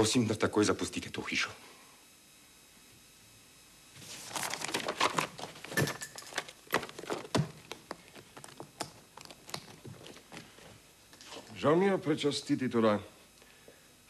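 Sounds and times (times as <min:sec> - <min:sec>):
paper rustling and crinkling: 0:04.0 - 0:11.6.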